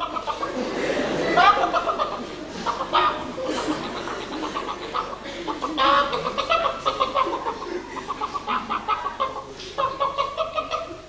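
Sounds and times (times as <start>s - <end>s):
person imitating chicken clucking: 1.5s - 11.0s.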